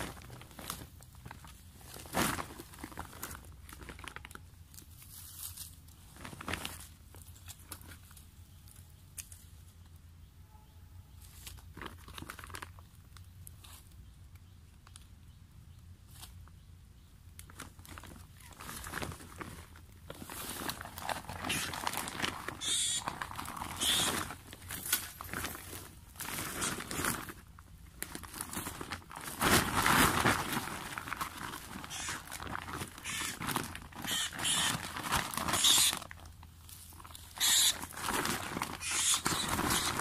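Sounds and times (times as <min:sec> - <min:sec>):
plastic bag rustling: 0:00.0 - 0:04.4, 0:05.0 - 0:08.1, 0:17.5 - 0:40.0.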